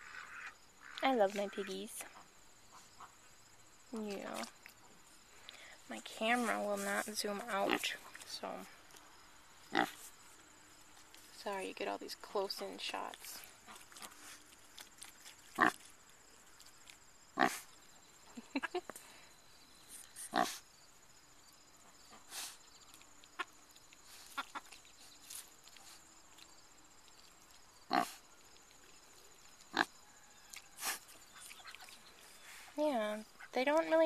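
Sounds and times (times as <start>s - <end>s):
pigs grunting: 9.7s - 10.0s, 15.5s - 15.9s, 17.4s - 17.7s, 20.2s - 20.6s, 27.9s - 28.2s.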